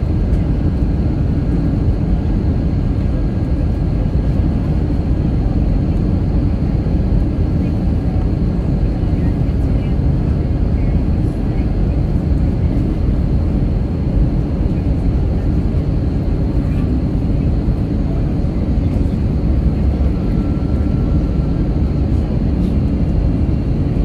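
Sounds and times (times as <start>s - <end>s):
airliner cabin engine rumble: 0.0s - 24.0s.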